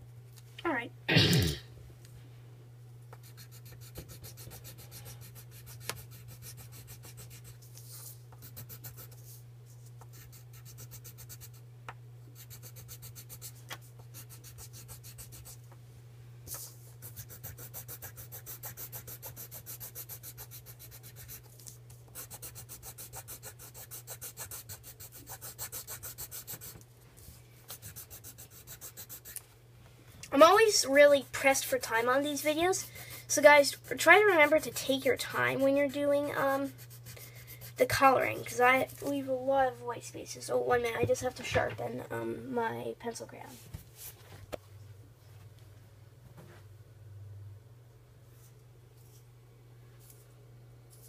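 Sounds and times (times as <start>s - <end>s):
steady low hum: 0.0s - 51.0s
pencil crayon scratching on paper: 3.2s - 9.3s, 10.1s - 11.6s, 12.4s - 15.6s, 16.6s - 21.5s, 22.2s - 26.8s, 27.7s - 29.4s, 30.4s - 39.2s.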